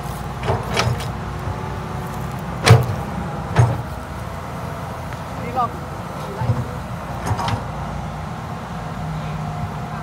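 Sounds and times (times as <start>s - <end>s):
excavator bucket clanking: 0.0s - 1.4s, 2.2s - 4.0s, 6.2s - 7.8s
excavator diesel engine running: 0.0s - 10.0s.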